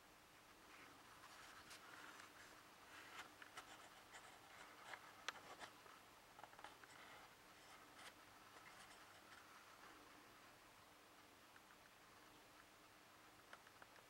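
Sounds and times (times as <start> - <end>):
rustling: 0.3 - 10.6
faint scratchy ticks: 0.7 - 10.1, 11.4 - 14.0.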